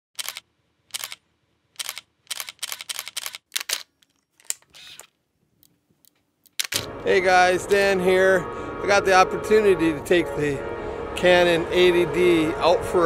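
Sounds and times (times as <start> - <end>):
camera shutter firing: 0.2 - 1.2, 1.8 - 3.9, 6.6 - 6.9
camera whir: 0.2 - 1.2, 1.8 - 5.1.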